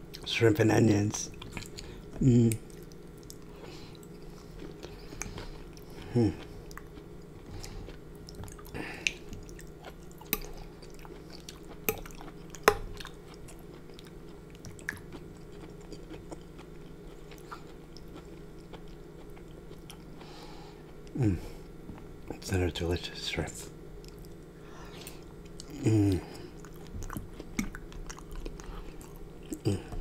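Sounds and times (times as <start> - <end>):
faint steady hum: 0.0 - 30.0
close chewing: 2.5 - 21.2, 25.0 - 30.0.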